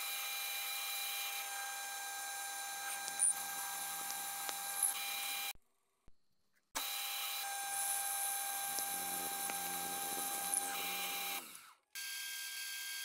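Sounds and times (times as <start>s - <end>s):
cutter cutting steel: 0.0s - 5.6s, 6.8s - 13.0s
milling machine whine: 6.8s - 11.7s.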